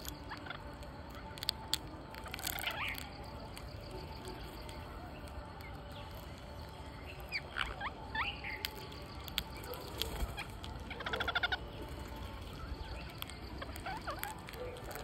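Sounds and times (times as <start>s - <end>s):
parakeets squawking: 7.1s - 15.0s
parakeet chattering trill: 7.2s - 15.0s.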